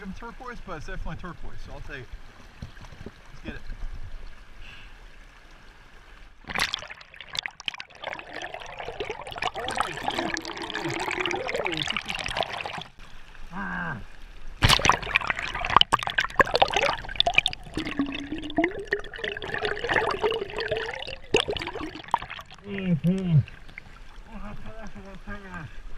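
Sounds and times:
river water sloshing and bubbling: 1.4s - 25.9s
sharp splashes: 6.4s - 13.1s, 14.6s - 24.4s.

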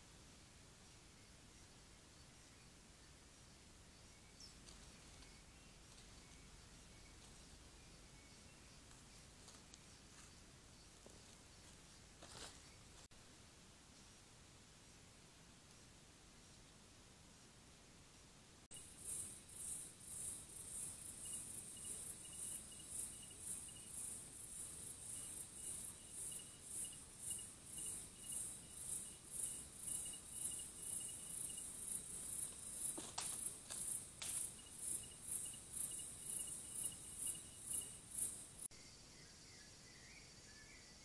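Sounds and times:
faint low insect pips: 0.0s - 41.0s
cricket-like chirping: 18.7s - 41.0s.

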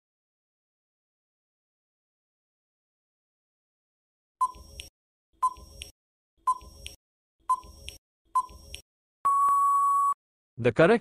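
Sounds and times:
long steady beep: 9.2s - 10.2s.

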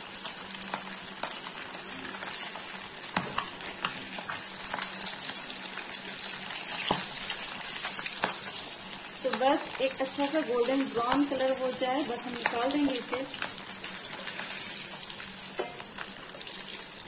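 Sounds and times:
fish sizzling in oil: 0.0s - 17.0s.

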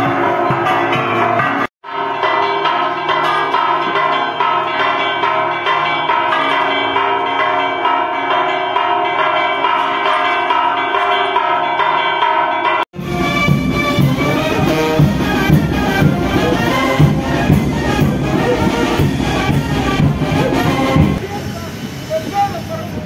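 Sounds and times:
church bells ringing: 0.0s - 21.7s.

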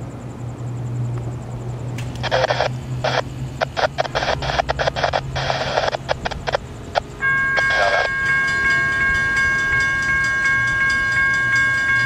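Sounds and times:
diesel locomotive drone: 0.0s - 12.0s
bursts of hissing noise: 2.0s - 7.1s.

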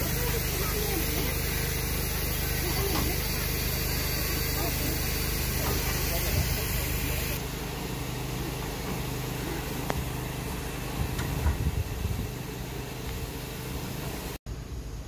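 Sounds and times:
low mechanical hum: 0.0s - 15.0s
steam locomotive hissing: 0.0s - 15.0s.

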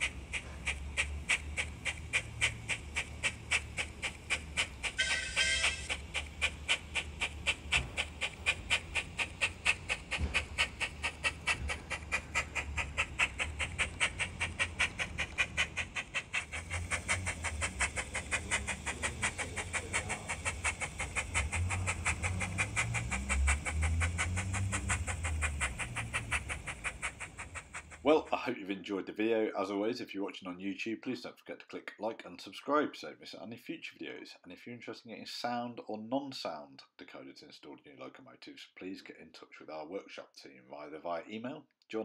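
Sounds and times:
steam locomotive chuffing: 0.0s - 28.6s.

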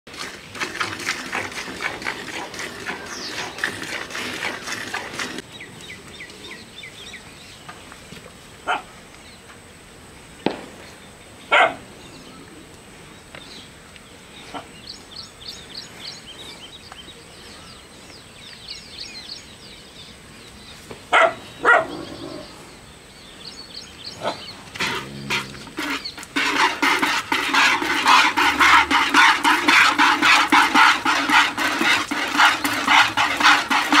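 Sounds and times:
milk squirting into bucket: 0.1s - 5.4s, 24.8s - 34.0s
birds chirping: 2.7s - 7.9s, 10.4s - 26.4s
loud animal calls: 24.2s - 34.0s.

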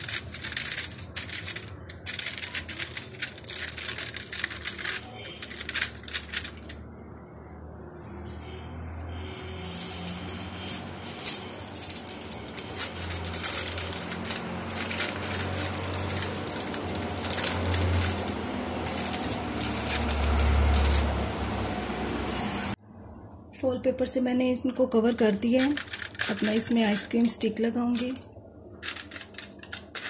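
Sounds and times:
kitchen foil crinkling: 0.0s - 6.8s, 9.6s - 21.2s, 25.4s - 28.2s, 28.8s - 30.0s.

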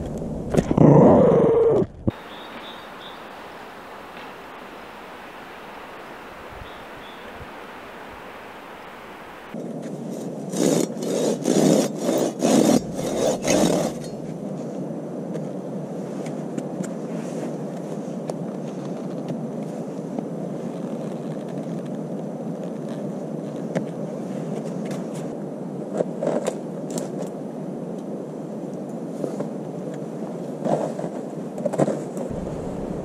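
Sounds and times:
low rushing noise: 1.4s - 9.6s, 12.6s - 15.3s, 32.3s - 33.0s.

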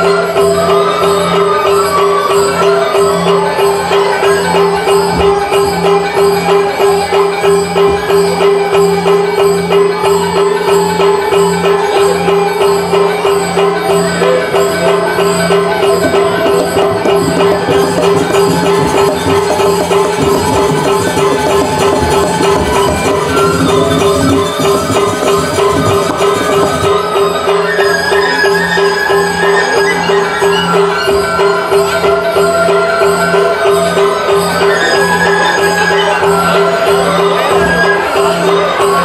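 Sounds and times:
drums beating: 11.2s - 28.6s.

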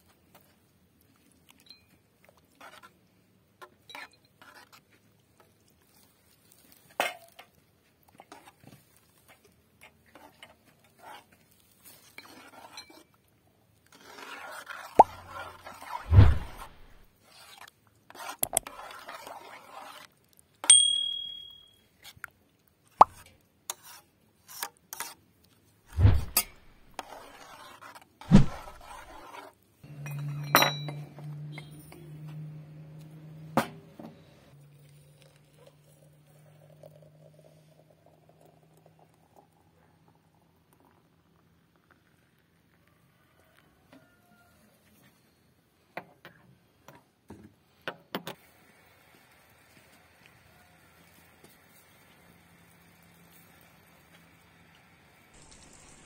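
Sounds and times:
soft plops of mash: 0.0s - 15.9s
metal spoon scraping a pot: 3.6s - 5.0s, 9.3s - 13.2s, 13.9s - 20.1s, 23.7s - 25.2s, 26.1s - 32.3s.

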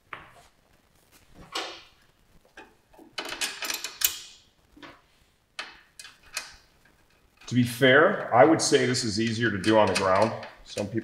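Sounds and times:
metal parts knocking and clicking: 3.0s - 4.4s, 5.6s - 7.5s, 9.6s - 10.9s.

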